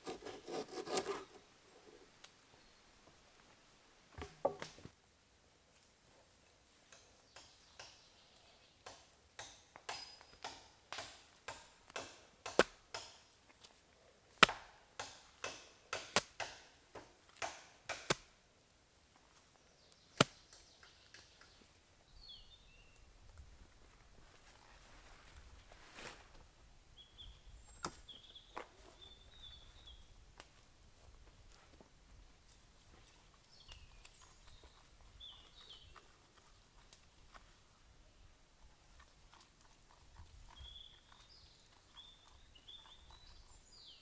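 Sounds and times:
hands scraping dry soil: 0.0 - 2.0, 24.2 - 26.5.

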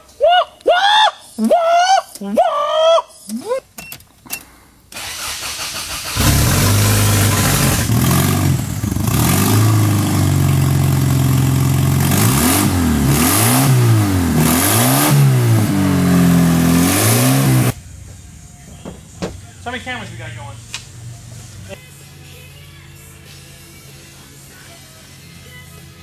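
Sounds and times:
remote-controlled car engine revving: 5.0 - 10.2.

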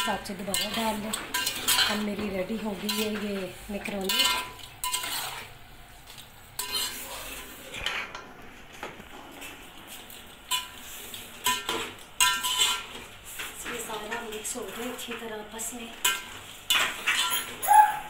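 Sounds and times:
metal spoon scraping a metal pot: 0.4 - 2.1, 4.0 - 5.5, 6.6 - 7.6, 11.4 - 13.0, 16.0 - 17.6.

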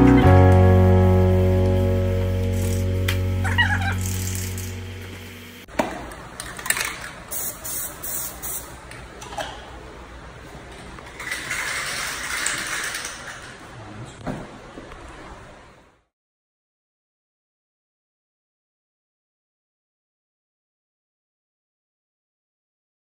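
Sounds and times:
background music: 0.0 - 5.7
hiss: 7.3 - 8.7.

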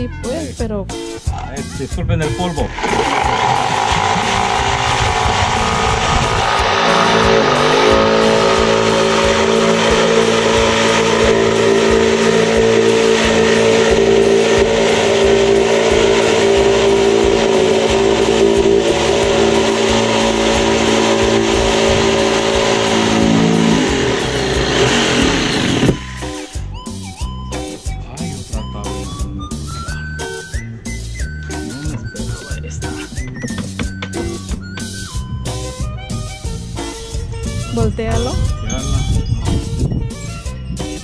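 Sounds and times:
electric power tool cutting: 2.6 - 26.7.

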